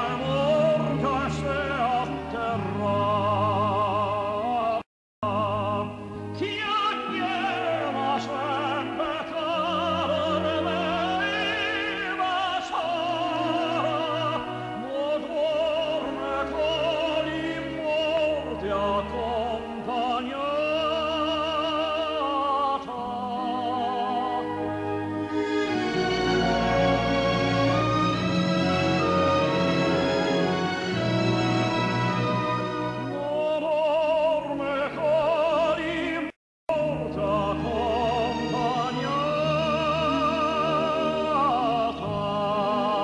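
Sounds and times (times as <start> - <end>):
operatic singing with vibrato: 0.0 - 43.0
sustained instrumental accompaniment: 23.0 - 35.2.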